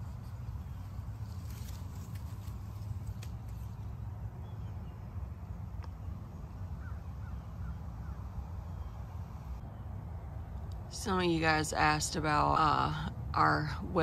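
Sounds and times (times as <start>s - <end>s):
steady low rumble: 0.0s - 14.0s
bird calling rising notes: 3.5s - 10.6s.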